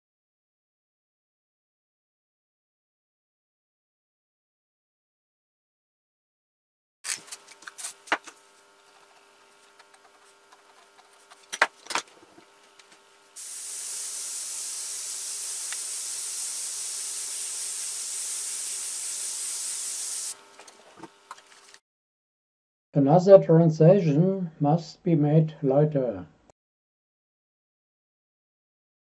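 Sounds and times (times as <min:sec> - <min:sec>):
airbrush hissing: 0:13.4 - 0:20.4.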